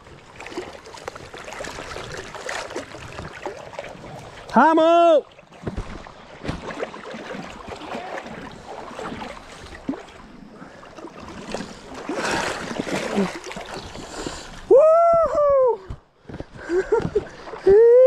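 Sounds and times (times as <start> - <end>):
man shouting: 4.6 - 5.2.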